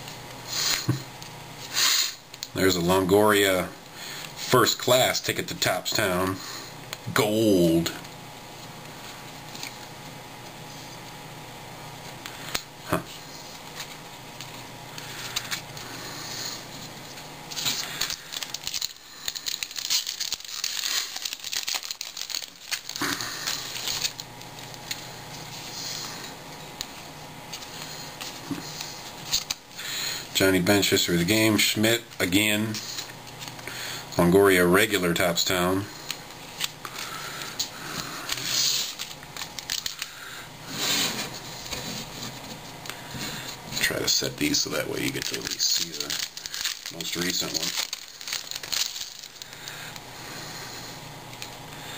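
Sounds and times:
foil wrapper crinkling: 0:13.4 - 0:26.2, 0:26.8 - 0:33.9, 0:35.8 - 0:40.4, 0:41.1 - 0:50.4
hands shuffling cards: 0:16.8 - 0:26.1, 0:26.8 - 0:30.0, 0:36.0 - 0:50.1.

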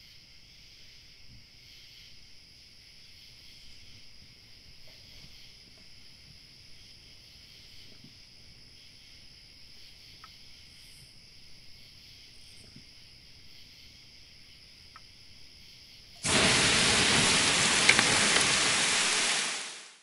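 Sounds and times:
insect hum: 0:00.0 - 0:20.0
campfire pops: 0:16.2 - 0:20.0
heavy rain hiss: 0:16.2 - 0:20.0.

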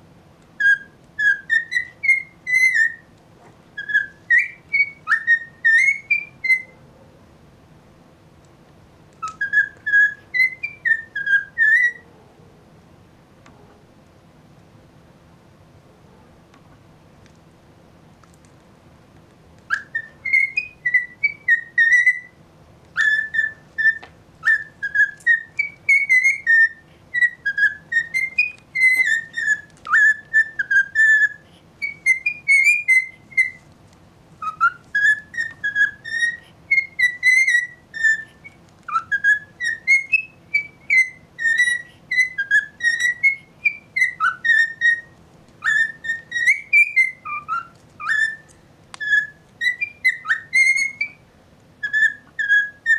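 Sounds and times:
cockatiel whistling: 0:00.6 - 0:03.1, 0:03.8 - 0:06.8, 0:09.2 - 0:12.0, 0:19.7 - 0:33.7, 0:34.4 - 0:51.2, 0:51.8 - 0:52.9.

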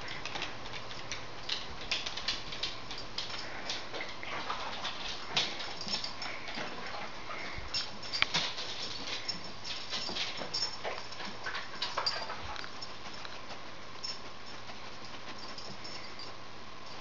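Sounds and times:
dog claws clicking on wooden floor: 0:00.0 - 0:07.0, 0:07.8 - 0:13.4.

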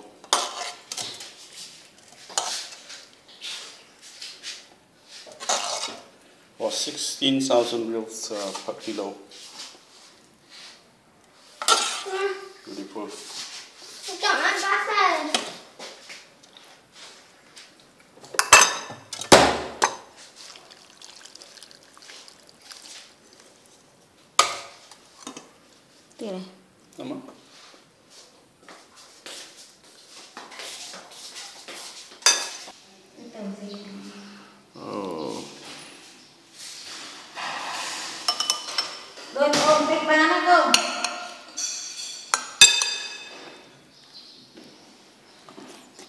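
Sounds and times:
broth pouring into bowl: 0:20.3 - 0:23.9
metal ladle clinking on pot and bowl: 0:38.3 - 0:39.1, 0:40.7 - 0:43.6.

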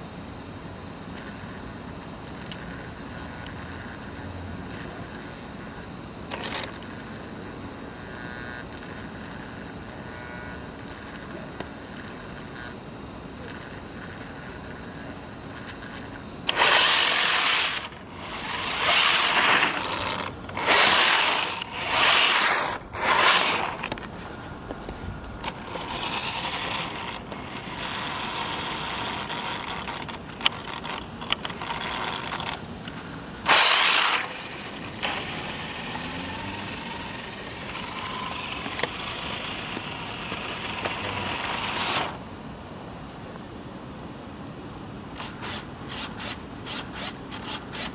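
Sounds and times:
toy car tyre and drivetrain noise: 0:02.2 - 0:07.4, 0:13.4 - 0:42.2, 0:45.2 - 0:47.9.

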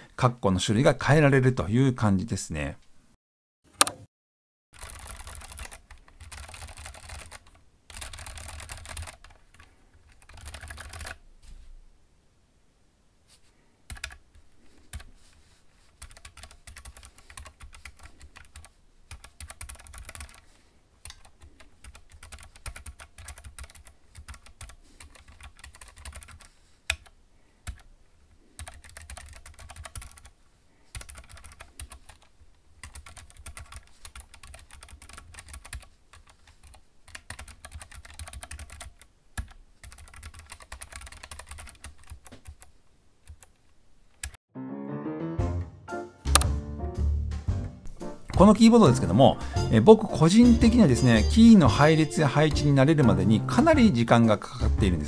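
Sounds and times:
mechanical keyboard typing: 0:04.8 - 0:11.2, 0:13.9 - 0:14.3, 0:15.9 - 0:20.4, 0:21.0 - 0:27.9, 0:28.6 - 0:30.3, 0:30.9 - 0:44.4.

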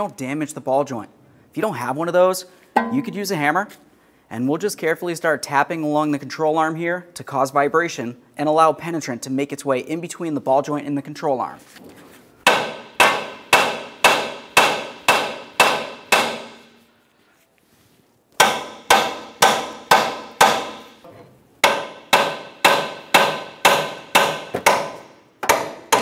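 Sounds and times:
hammer striking metal: 0:02.8 - 0:03.4, 0:12.4 - 0:16.8, 0:18.4 - 0:26.0.

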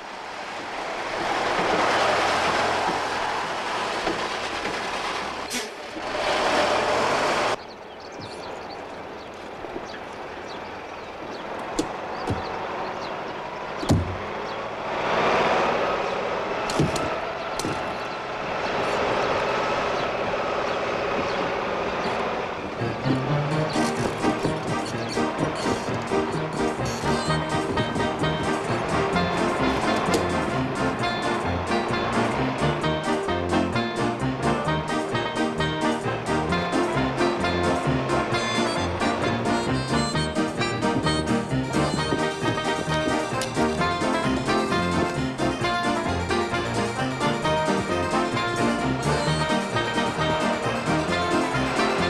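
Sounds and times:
cartoon vehicle engine noise: 0:00.0 - 0:07.6, 0:10.9 - 0:52.0
sharp knocks: 0:13.8 - 0:14.3.

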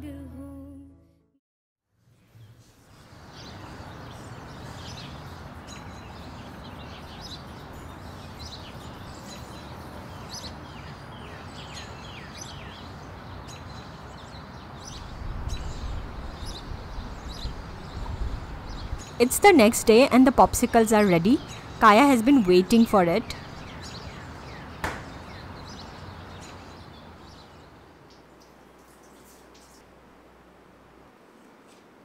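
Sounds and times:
outdoor ambience hiss: 0:01.9 - 0:32.0
small birds chirping: 0:02.3 - 0:29.9.

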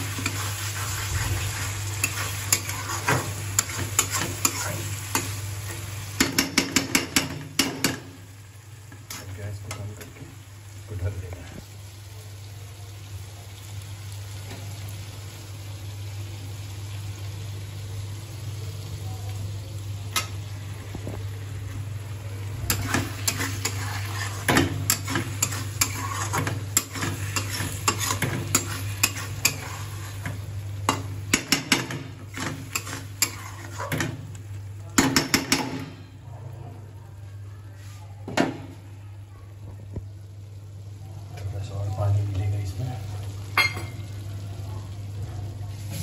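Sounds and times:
curry sizzling in a pan: 0:00.0 - 0:46.0
spatula scraping a steel pan: 0:22.7 - 0:30.3, 0:32.6 - 0:34.0.

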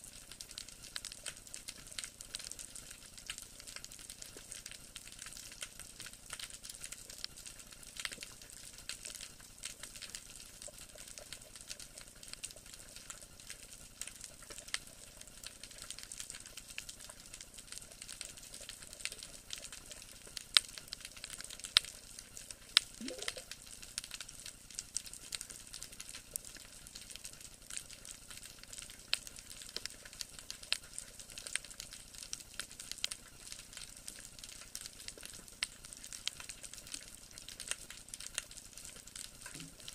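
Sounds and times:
underwater crackle of clicks: 0:00.1 - 0:39.9.

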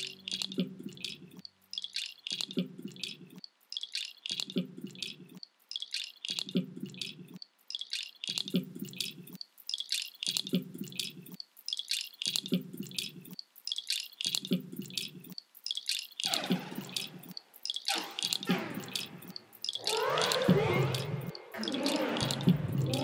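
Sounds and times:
experimental electronic music: 0:00.0 - 0:23.0.

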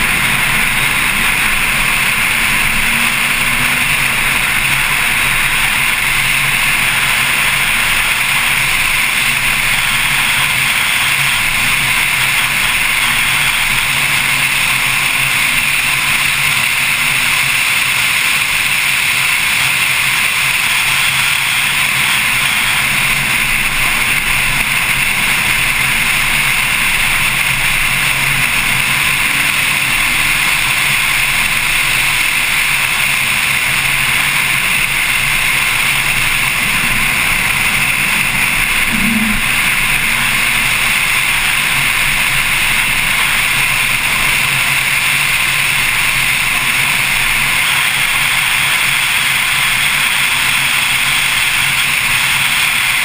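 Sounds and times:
faint car engine: 0:00.0 - 0:50.6
road noise: 0:00.0 - 0:53.0
wind rush: 0:34.3 - 0:44.2.

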